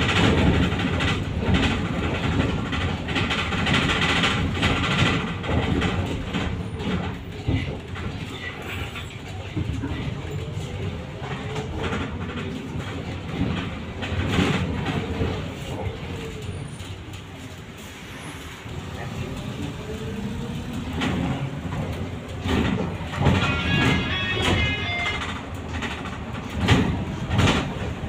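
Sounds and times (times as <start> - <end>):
knocks and rattles: 0.0 - 8.4, 20.9 - 28.0
bus road rumble: 0.0 - 28.0.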